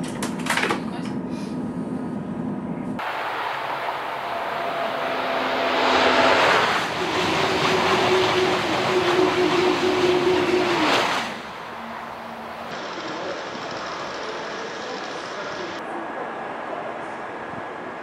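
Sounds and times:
high-speed train passing: 0:01.8 - 0:18.0
whining tone dropping in pitch: 0:03.0 - 0:12.7.

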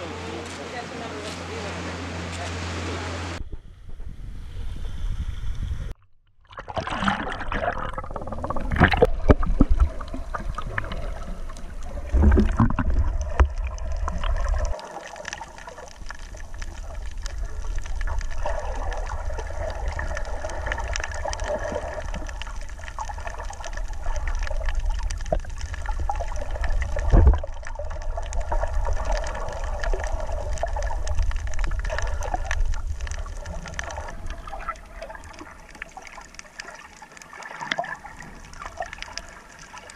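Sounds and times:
steady low rumble: 0:00.0 - 0:06.0, 0:15.8 - 0:35.7
muffled underwater water sloshing: 0:00.0 - 0:39.9.

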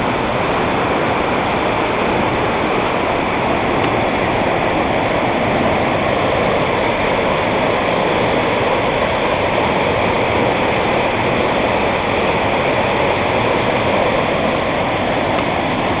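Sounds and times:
waterfall roaring: 0:00.0 - 0:16.0.

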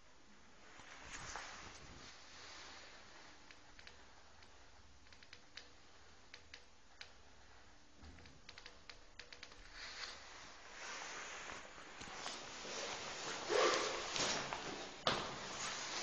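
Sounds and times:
light irregular clicks: 0:03.4 - 0:07.3, 0:08.0 - 0:10.2.

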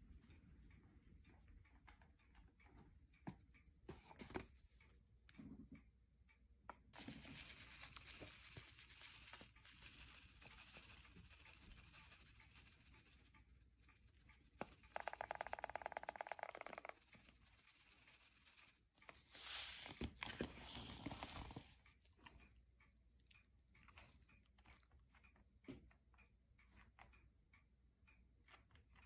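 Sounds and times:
paper pouch rustling: 0:07.0 - 0:12.9
pouch shaking rhythm: 0:07.0 - 0:13.3, 0:14.5 - 0:18.7.

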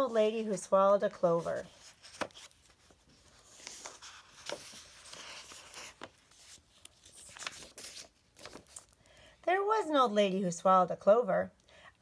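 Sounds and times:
book pages turning: 0:00.0 - 0:09.0.

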